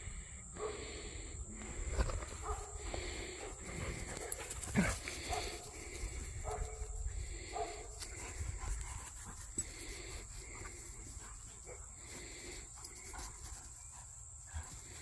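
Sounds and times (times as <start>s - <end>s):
dogs barking and yipping: 2.4s - 8.8s.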